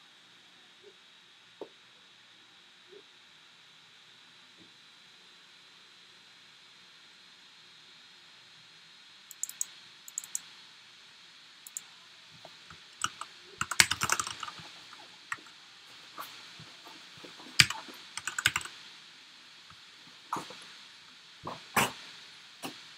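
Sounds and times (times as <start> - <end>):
keyboard keys clicking: 9.3 - 10.4, 13.0 - 15.5, 17.6 - 18.7.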